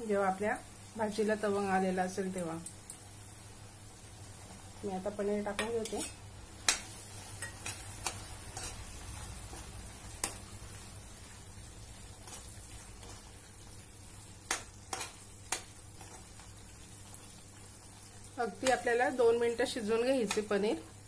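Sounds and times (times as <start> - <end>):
gravy sizzling in a pan: 0.0 - 21.0
spoon knocking and scraping pan: 5.5 - 10.5, 14.4 - 16.5.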